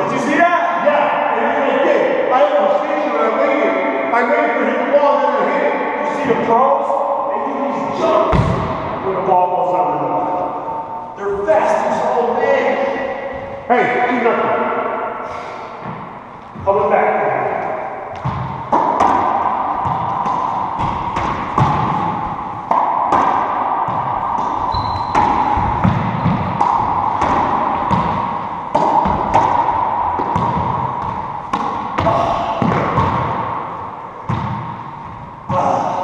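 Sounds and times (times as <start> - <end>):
racquetball hits ringing: 8.0 - 9.1, 17.4 - 36.0.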